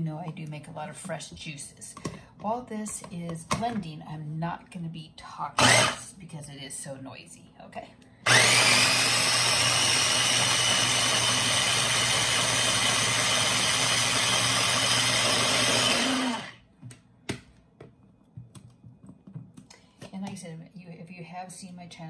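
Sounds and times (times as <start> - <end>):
blender whirring: 5.6 - 6.1, 8.2 - 16.6.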